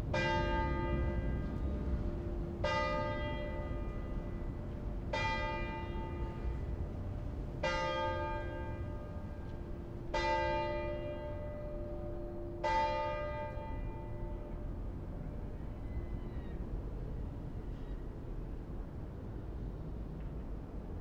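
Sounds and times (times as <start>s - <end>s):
church bell tolling: 0.1s - 6.6s, 7.6s - 14.7s.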